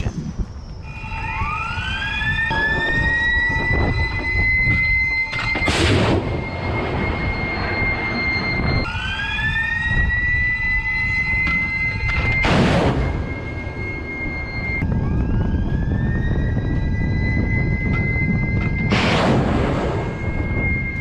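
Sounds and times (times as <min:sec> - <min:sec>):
low rumble: 0:00.0 - 0:21.0
drive motors whining: 0:00.5 - 0:18.9.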